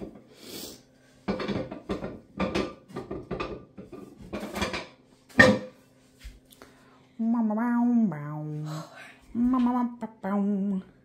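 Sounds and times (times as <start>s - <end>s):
kitchen items clattering on worktop: 1.2s - 5.8s.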